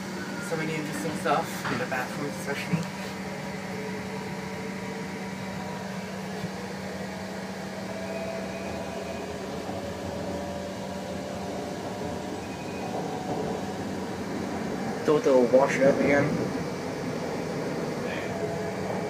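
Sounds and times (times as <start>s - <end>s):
exhaust fans humming: 0.0s - 19.0s.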